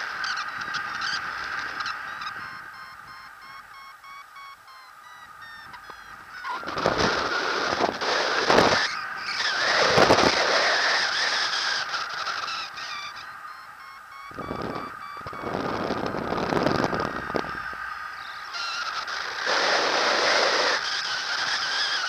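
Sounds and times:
variometer beeping: 0:00.7 - 0:10.3, 0:11.7 - 0:17.5.

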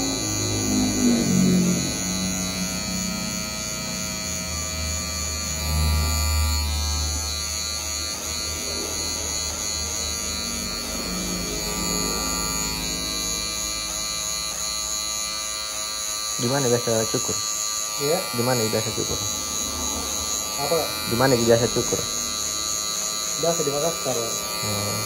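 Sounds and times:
electric hair clipper buzzing: 0:00.0 - 0:25.0.

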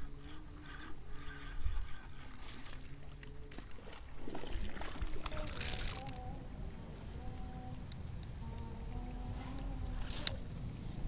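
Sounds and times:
low rumble on microphone: 0:05.0 - 0:11.0
fishing reel cranking and clicking: 0:05.3 - 0:06.3, 0:09.9 - 0:10.4.

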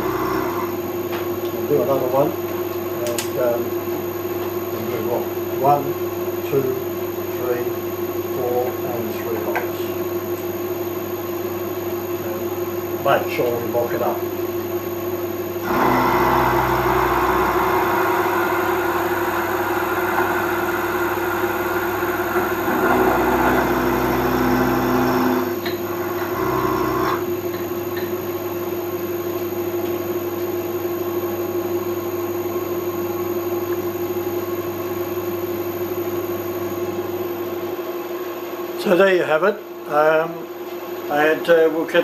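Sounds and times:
milling machine cutting metal: 0:15.6 - 0:27.3.

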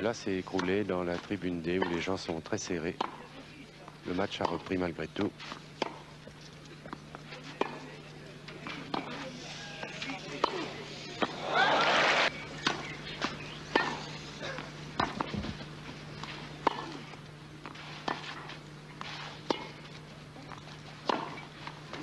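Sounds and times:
faint steady hum: 0:00.0 - 0:22.0
racket striking tennis ball: 0:00.5 - 0:02.1, 0:04.4 - 0:04.8, 0:05.4 - 0:06.1, 0:12.6 - 0:14.2, 0:14.9 - 0:15.5, 0:16.2 - 0:17.0, 0:17.6 - 0:19.9, 0:21.0 - 0:22.0.

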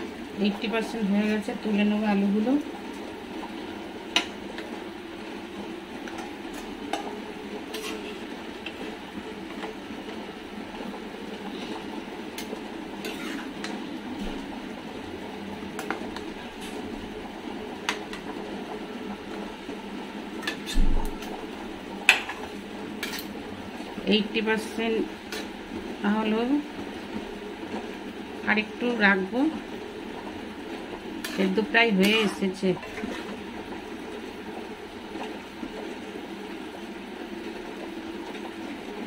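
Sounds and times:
metal spoon scraping metal pan: 0:07.7 - 0:08.2, 0:13.0 - 0:13.8, 0:31.2 - 0:33.3.

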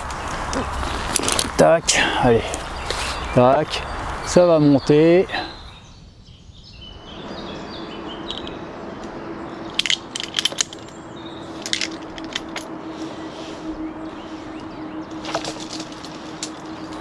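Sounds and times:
low hum: 0:06.6 - 0:17.0
metal hardware clinking: 0:09.7 - 0:11.0, 0:11.6 - 0:12.7.

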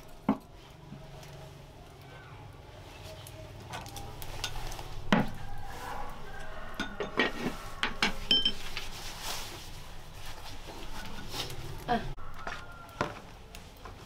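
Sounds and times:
spoon scraping a pot: 0:04.4 - 0:08.8
chopsticks knocking on bowls: 0:06.8 - 0:08.6.

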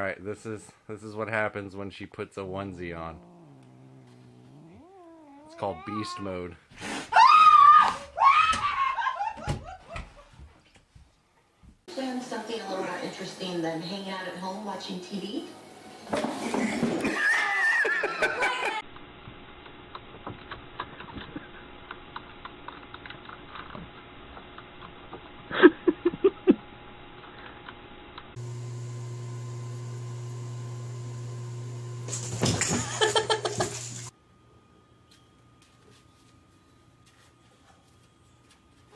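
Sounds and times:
steady low hum: 0:01.4 - 0:05.9
burst of laughter: 0:16.4 - 0:18.8, 0:32.6 - 0:33.8.

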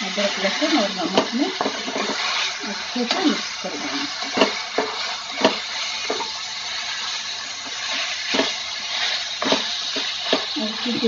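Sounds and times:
chicken sizzling in hot oil: 0:00.0 - 0:11.0
spatula knocking against pan: 0:04.2 - 0:06.3.

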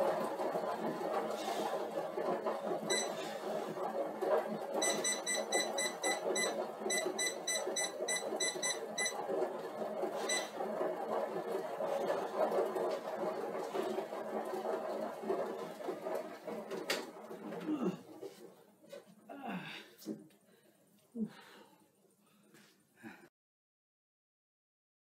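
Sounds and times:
steady low whir: 0:00.0 - 0:18.8
rapid high beeps: 0:02.9 - 0:03.2, 0:04.8 - 0:09.2.

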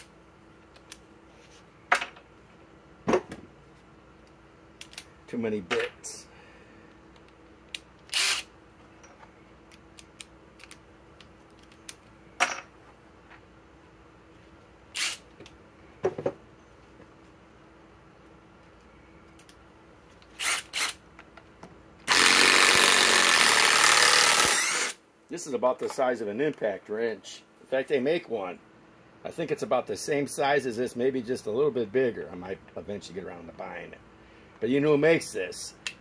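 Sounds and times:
impact driver hammering screw: 0:22.1 - 0:25.0.

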